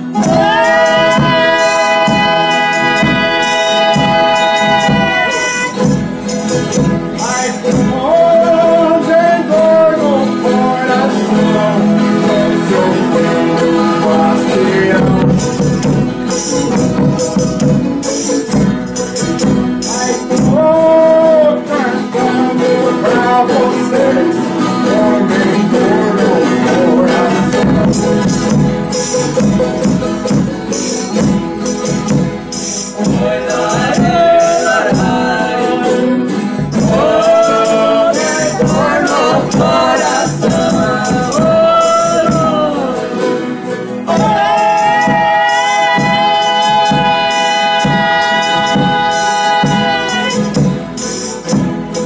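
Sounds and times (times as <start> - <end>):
folk ensemble singing: 0.0 - 52.0
guitars: 0.0 - 52.0
jingling tambourine: 0.0 - 52.0.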